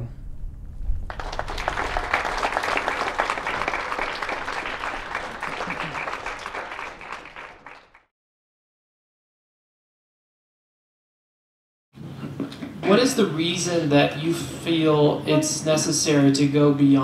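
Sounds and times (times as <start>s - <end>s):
audience applauding: 1.1s - 8.1s.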